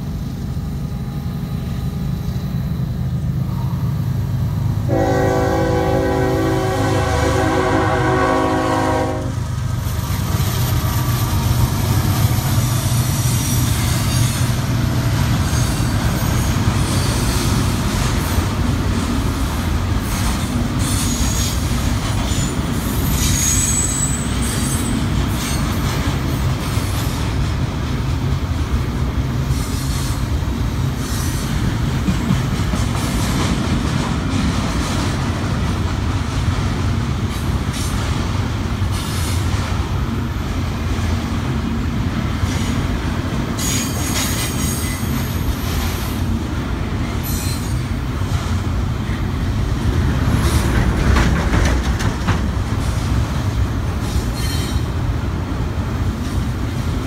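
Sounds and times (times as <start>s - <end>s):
diesel locomotive engine rumbling: 0.0s - 57.0s
train cars rolling over rails: 0.0s - 57.0s
high-pitched wheel squeals: 22.3s - 25.7s, 54.1s - 54.9s.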